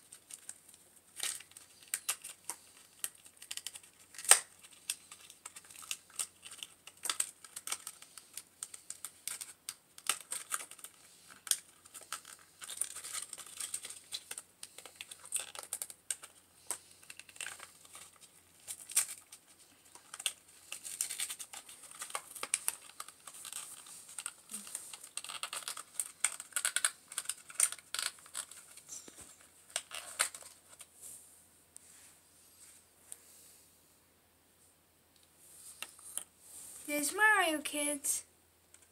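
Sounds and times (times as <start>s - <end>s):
plastic packaging crinkling: 0.0s - 30.9s.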